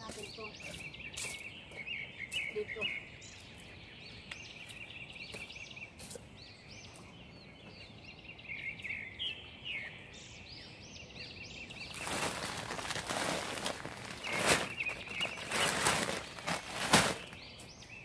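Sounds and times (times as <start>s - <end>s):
songbirds chirping: 0.0s - 18.0s
sacks rustling: 11.7s - 17.5s.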